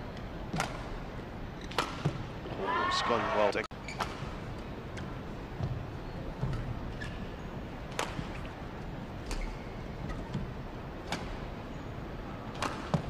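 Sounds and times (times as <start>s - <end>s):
indoor arena hush: 0.0s - 13.0s
rackets hitting shuttlecock: 7.9s - 8.4s, 12.5s - 13.0s.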